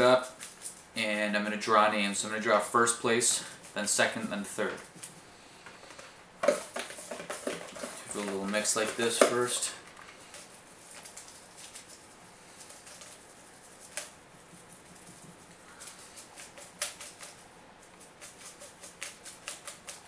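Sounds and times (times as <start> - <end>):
paper rustling: 6.5 - 20.0.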